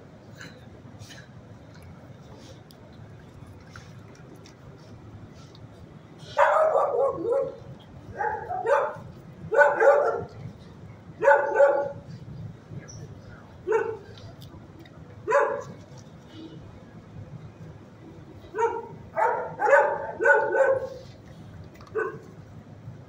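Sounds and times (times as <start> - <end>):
low steady hum: 0.0 - 23.0
dog barking: 6.3 - 10.3, 11.2 - 12.0, 13.7 - 14.1, 15.3 - 15.7, 18.5 - 21.0, 21.9 - 22.2.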